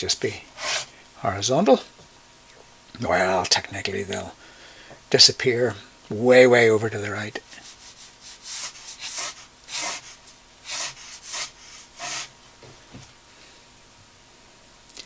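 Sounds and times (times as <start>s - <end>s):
pen scratching on paper: 0.6s - 0.9s, 7.6s - 12.3s.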